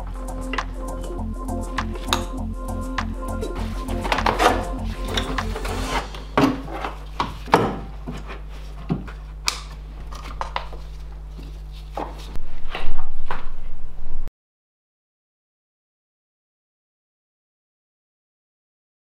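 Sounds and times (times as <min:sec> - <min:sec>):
low steady hum: 0:00.0 - 0:11.9.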